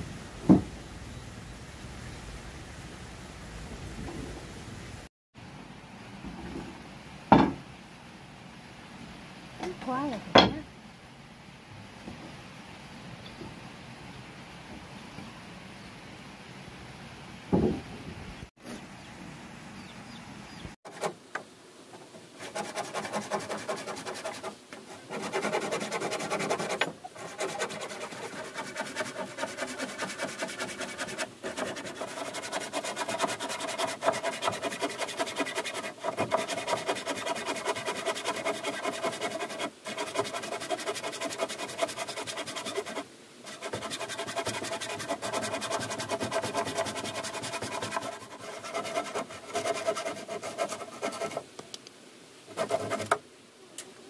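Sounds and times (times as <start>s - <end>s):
hand saw cutting wood: 20.9s - 21.2s, 22.3s - 51.4s, 52.5s - 53.2s.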